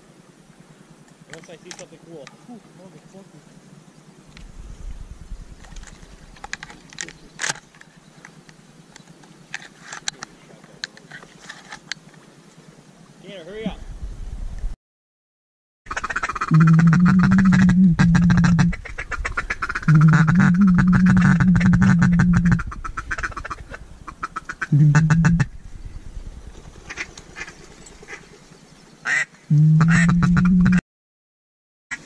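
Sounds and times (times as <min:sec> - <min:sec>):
duck call quacking: 0:15.9 - 0:25.5, 0:29.1 - 0:30.8.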